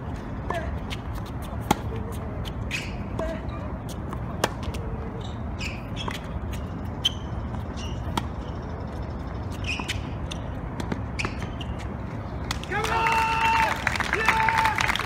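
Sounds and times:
shoes squeaking on court: 0.1s - 12.4s
tennis ball hit by rackets: 1.4s - 2.1s, 4.1s - 4.8s.

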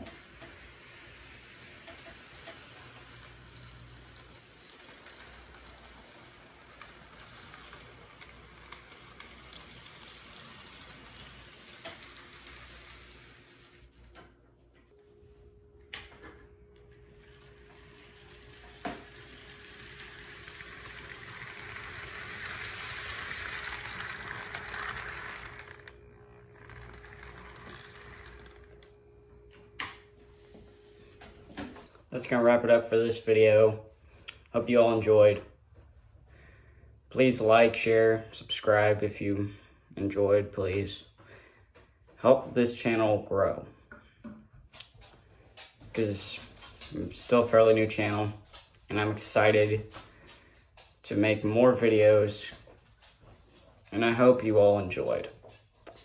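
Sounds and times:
model train running on track: 0.0s - 14.0s, 17.2s - 28.9s.

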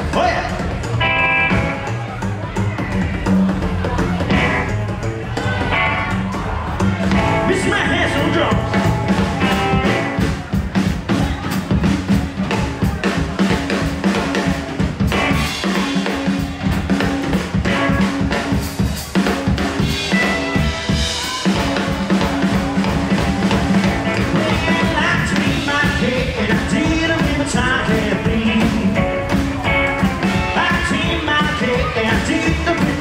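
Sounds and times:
rockabilly band playing: 0.0s - 33.0s.

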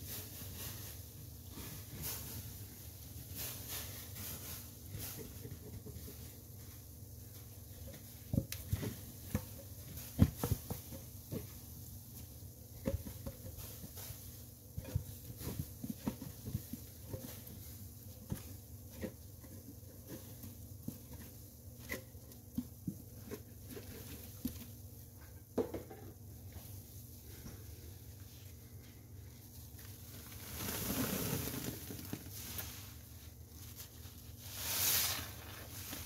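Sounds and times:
soapy sponge squelching: 29.7s - 36.0s.

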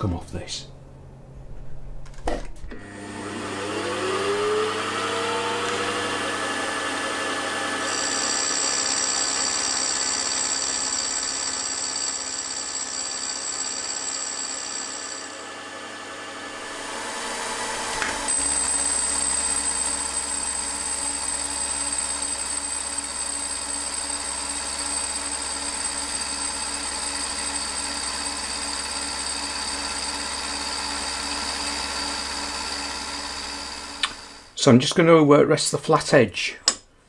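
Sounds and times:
milling machine cutting metal: 3.0s - 34.5s
high machining whine: 7.5s - 12.2s.

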